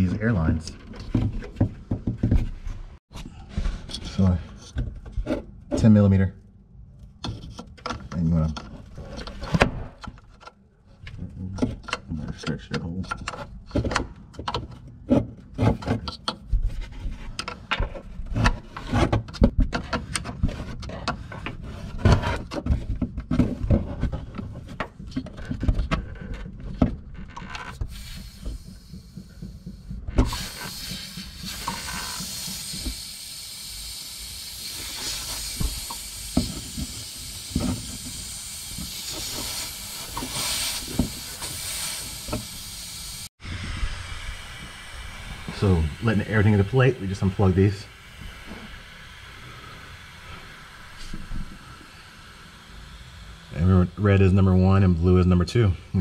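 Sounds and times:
air hissing from line: 27.8 - 54.6.

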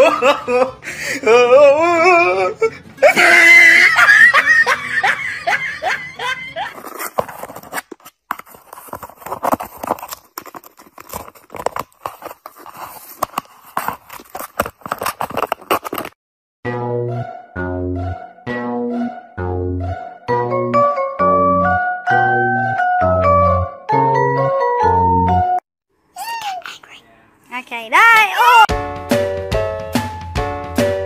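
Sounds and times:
person laughing: 0.0 - 6.8.

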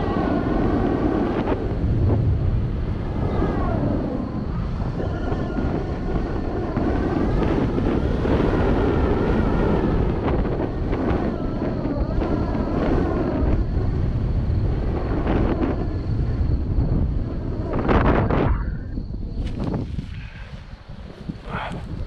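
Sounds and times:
wind rushing over microphone: 0.0 - 22.0
faint wavering whistle: 3.3 - 5.9.

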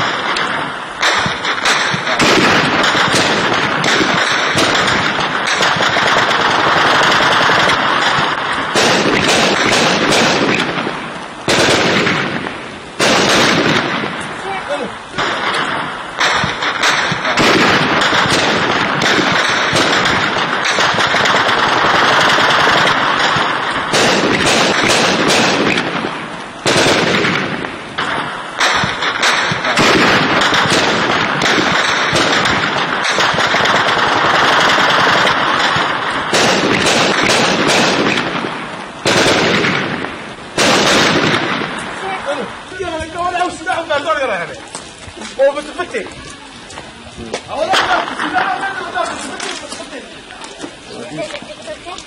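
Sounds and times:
rifle automatic bursts: 0.0 - 14.1, 15.2 - 42.1.

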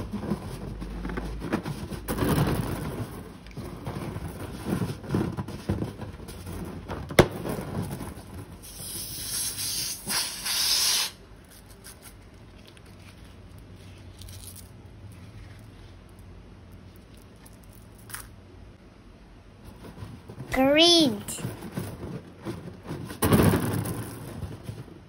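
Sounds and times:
slime rustling and squishing: 11.4 - 18.1.

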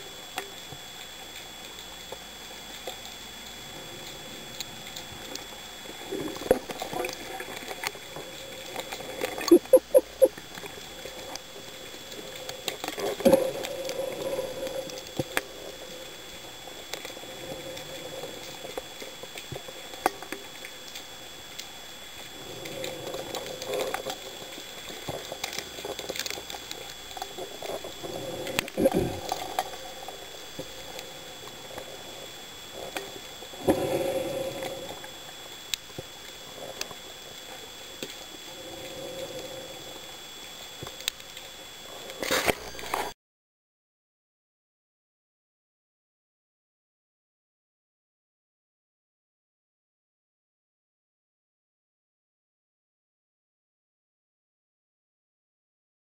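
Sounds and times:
diver breathing and bubbling: 5.9 - 10.3, 27.8 - 32.0
faint steady high tone: 9.4 - 10.4.

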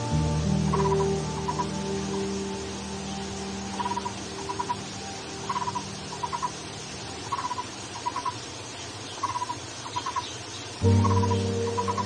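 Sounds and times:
barbet rattling call: 0.7 - 2.3, 3.7 - 6.6, 7.2 - 12.0.

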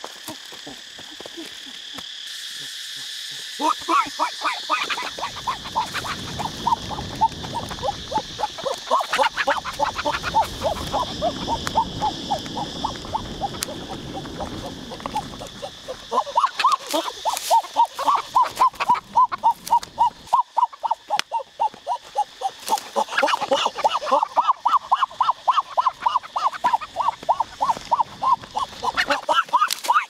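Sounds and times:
high insect drone: 0.0 - 30.0.

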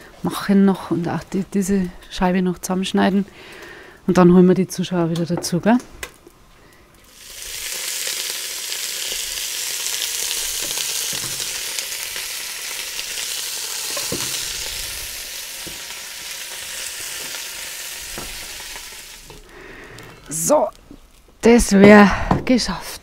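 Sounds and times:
meat sizzling in hot fat: 7.0 - 21.7.

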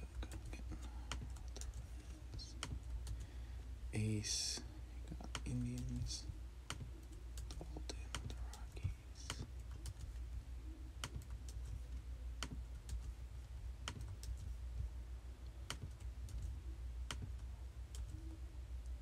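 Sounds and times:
steady low hum: 0.0 - 19.0
laptop keystrokes clicking: 1.1 - 1.8, 13.8 - 14.5.

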